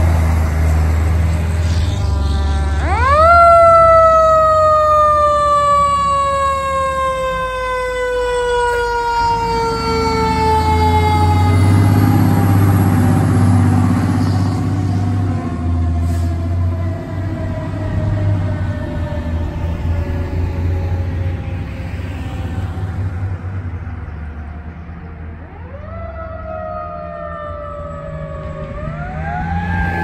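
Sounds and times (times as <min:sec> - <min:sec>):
fire truck engine: 0:00.0 - 0:30.0
mechanical siren wailing: 0:01.6 - 0:20.8, 0:25.5 - 0:30.0.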